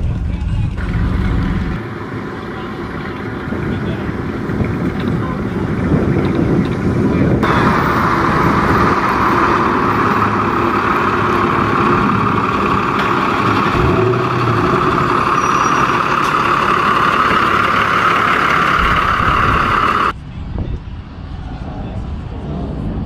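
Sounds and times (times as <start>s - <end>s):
pickup truck engine driving past: 0.7s - 20.1s
loud rushing hiss: 7.4s - 20.1s.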